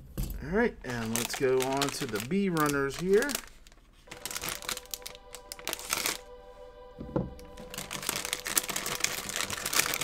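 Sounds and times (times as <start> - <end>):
plastic bag crinkling: 0.8 - 6.3, 7.4 - 10.0
music-like tones: 4.1 - 10.0.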